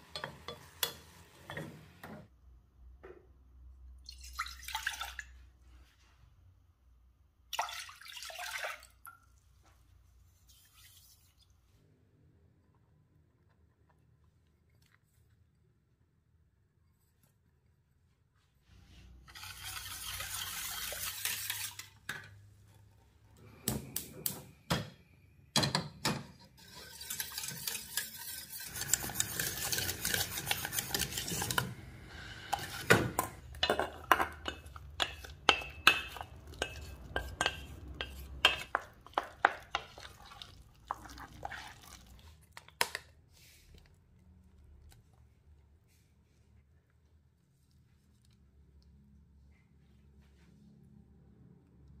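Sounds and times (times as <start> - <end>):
utensil scraping in a bowl: 18.9 - 22.1, 26.4 - 42.2.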